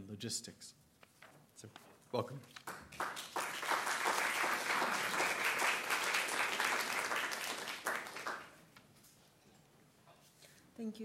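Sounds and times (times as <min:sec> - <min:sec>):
audience applauding: 0:02.6 - 0:08.6.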